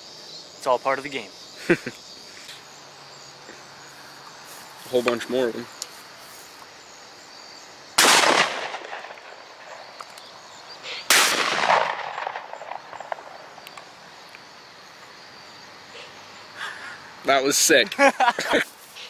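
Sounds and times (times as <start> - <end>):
shotgun shots: 8.0 - 9.8, 11.1 - 13.4.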